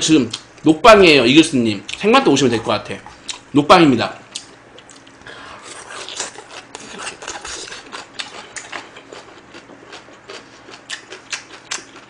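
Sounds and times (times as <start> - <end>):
chewing food: 4.3 - 12.0.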